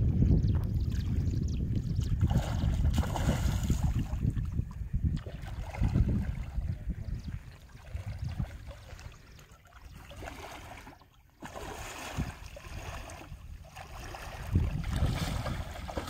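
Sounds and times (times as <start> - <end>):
people wading through water: 2.0 - 16.0
fish thrashing in water: 2.1 - 4.2, 9.7 - 16.0.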